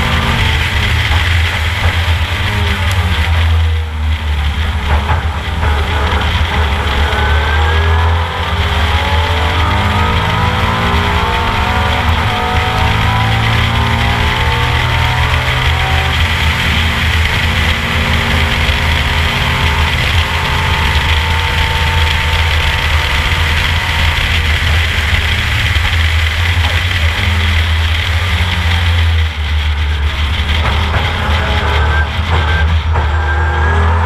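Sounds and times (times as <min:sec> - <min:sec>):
race car engine running hard: 0:00.0 - 0:34.0.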